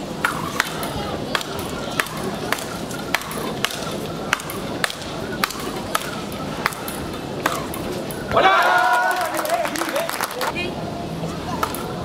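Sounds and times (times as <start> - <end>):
paddle rackets striking ball: 0.2 - 8.2.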